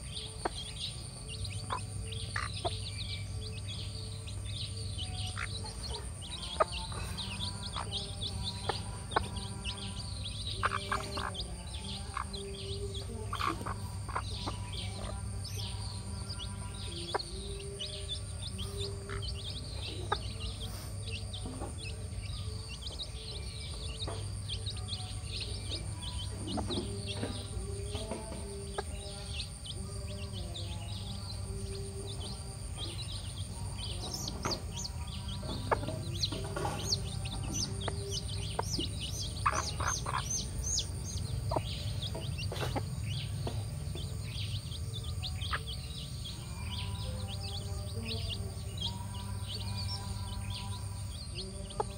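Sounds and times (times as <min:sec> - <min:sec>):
hen clucking: 0:00.0 - 0:02.9, 0:05.0 - 0:15.7, 0:34.0 - 0:44.2
chicks peeping: 0:00.0 - 0:51.9.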